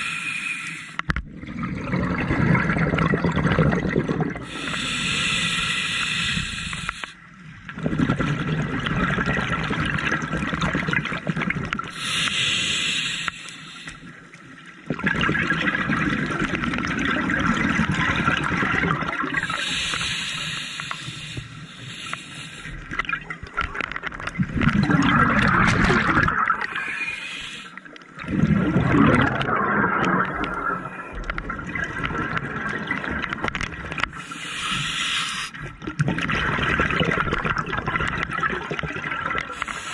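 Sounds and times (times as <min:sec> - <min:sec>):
scuba regulator hissing inhalations: 0:00.0 - 0:01.0, 0:04.4 - 0:07.2, 0:11.9 - 0:14.1, 0:19.4 - 0:22.9, 0:26.7 - 0:27.9, 0:34.2 - 0:35.6, 0:39.5 - 0:39.9
bubbling gurgling exhalations: 0:01.3 - 0:05.5, 0:07.7 - 0:12.0, 0:14.9 - 0:20.3, 0:24.3 - 0:27.1, 0:28.2 - 0:34.8, 0:35.6 - 0:39.9.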